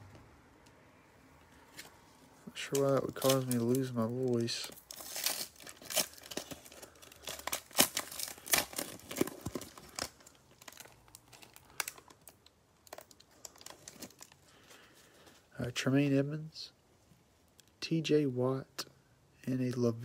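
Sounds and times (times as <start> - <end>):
foil pack tearing and crinkling: 2.5 - 14.9.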